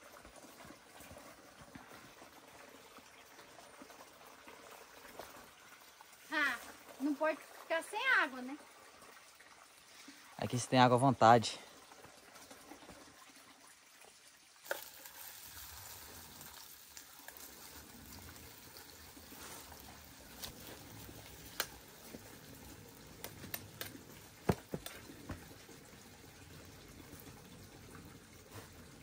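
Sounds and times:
pan sizzling: 0:14.6 - 0:25.4
wood fire popping and crackling: 0:14.6 - 0:29.0.

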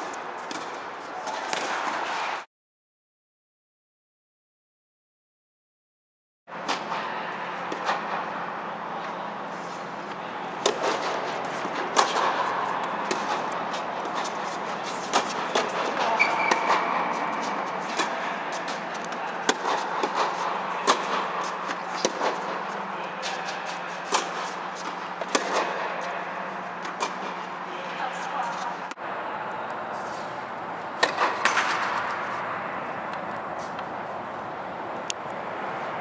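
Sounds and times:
steady background hum: 0:00.0 - 0:02.4, 0:06.5 - 0:36.0
tennis balls struck by rackets: 0:00.4 - 0:02.2, 0:10.0 - 0:27.5, 0:30.9 - 0:32.4.

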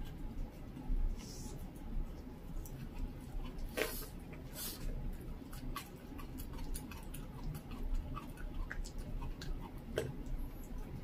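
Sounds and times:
dog crunching bones: 0:02.6 - 0:11.0.

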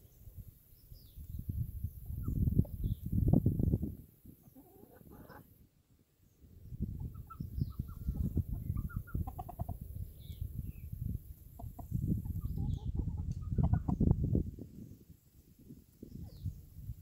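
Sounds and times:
chickens clucking: 0:01.9 - 0:05.6, 0:06.7 - 0:14.4.

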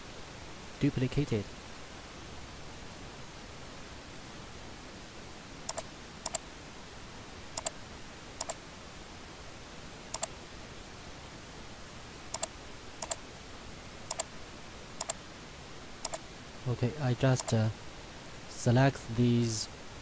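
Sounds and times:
faint hiss: 0:00.0 - 0:20.0
computer mouse clicking: 0:05.7 - 0:06.4, 0:07.6 - 0:07.8, 0:08.4 - 0:08.6, 0:10.1 - 0:10.3, 0:12.3 - 0:13.2, 0:14.1 - 0:14.3, 0:15.0 - 0:15.2, 0:16.0 - 0:16.2, 0:17.4 - 0:17.6.

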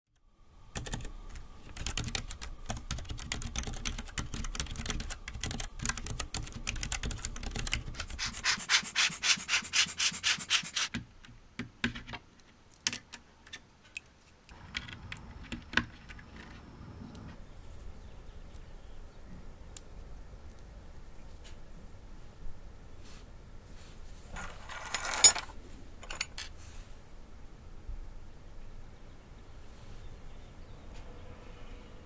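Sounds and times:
keyboard typing clacks: 0:00.8 - 0:08.2.

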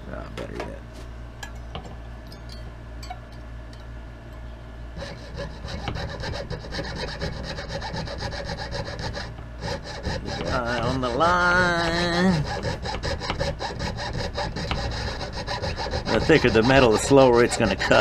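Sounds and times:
saw cutting through metal: 0:05.0 - 0:18.0.

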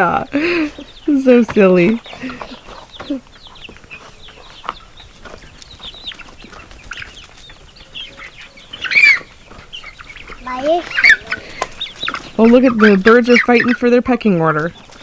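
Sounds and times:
young chickens clucking: 0:00.0 - 0:15.0
chicken squawk: 0:02.2 - 0:13.9.

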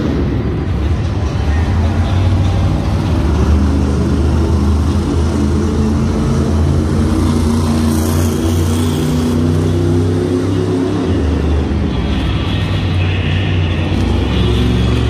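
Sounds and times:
truck engine running loud: 0:00.0 - 0:15.0.

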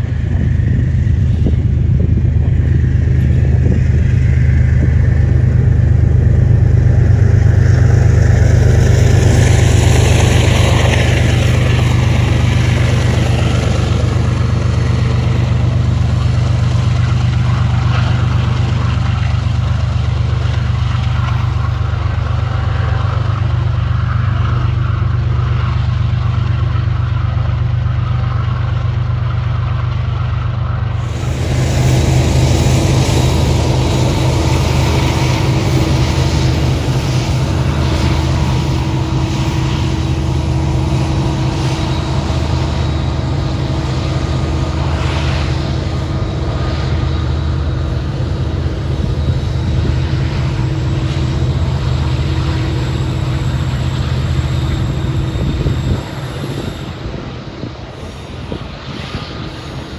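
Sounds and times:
diesel locomotive engine drone: 0:00.0 - 0:59.9
wheel and rail noise: 0:00.0 - 0:59.9.

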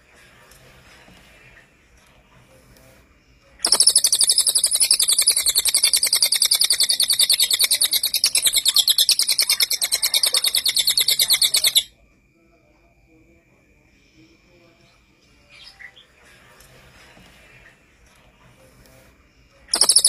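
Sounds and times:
songbird singing rapid notes: 0:03.6 - 0:11.9, 0:19.7 - 0:20.0.

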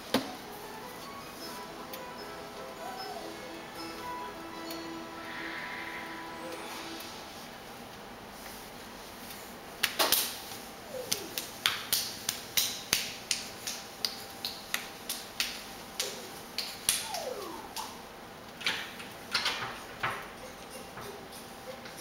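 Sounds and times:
hands slapping on tiled floor: 0:09.8 - 0:10.4, 0:11.0 - 0:17.0.

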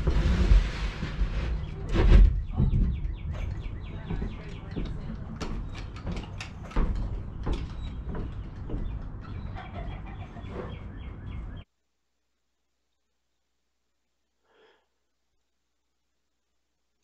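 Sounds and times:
footsteps and knocks on plywood floor: 0:02.0 - 0:09.6
high bird calls: 0:02.4 - 0:11.7.

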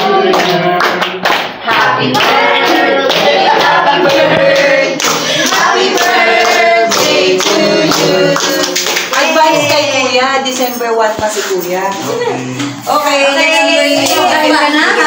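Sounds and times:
group singing: 0:00.0 - 0:10.2, 0:12.1 - 0:15.0
hands clapping: 0:00.3 - 0:09.7.

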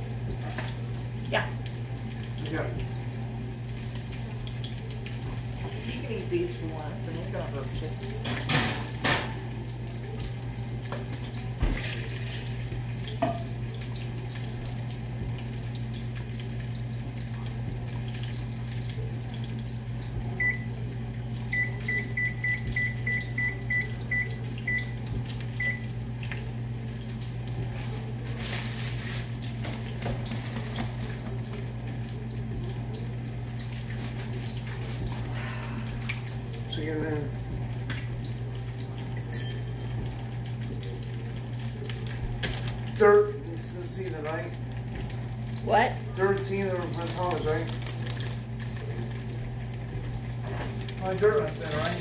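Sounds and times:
electronic appliance beeps: 0:20.3 - 0:20.8, 0:21.4 - 0:26.0.

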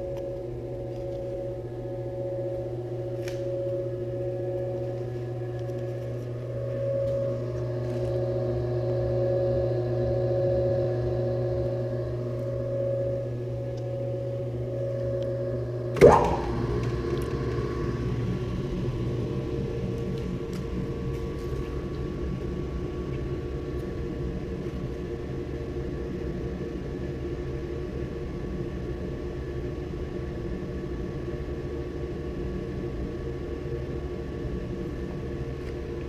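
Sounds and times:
pulsing whir: 0:00.0 - 0:21.1
mixer motor humming: 0:00.0 - 0:25.6
sharp clunk: 0:16.0 - 0:16.6.

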